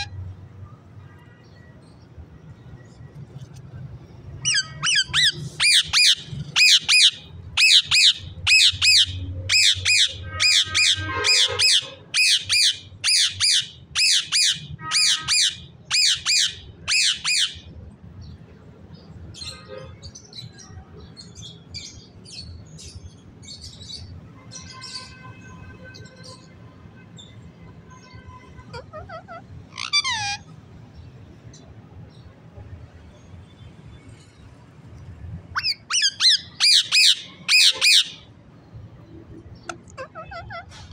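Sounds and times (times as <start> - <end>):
parakeet squawking: 4.4 - 17.7, 28.6 - 30.6, 35.5 - 38.3, 39.6 - 40.8.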